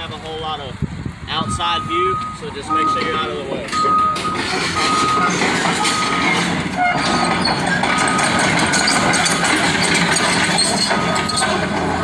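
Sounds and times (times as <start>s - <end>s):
diesel engine running: 0.0s - 12.0s
backup alarm beeping: 1.4s - 7.0s
machine rattle: 3.7s - 12.0s.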